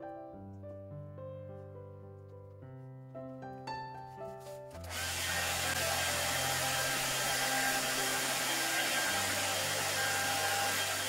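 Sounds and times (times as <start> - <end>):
hair dryer blowing: 4.8 - 11.0.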